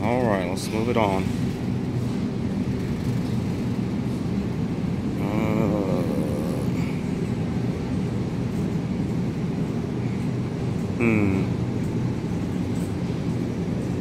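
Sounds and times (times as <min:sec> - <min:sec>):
supermarket background rumble: 0:00.0 - 0:14.0
background voice: 0:05.2 - 0:07.0.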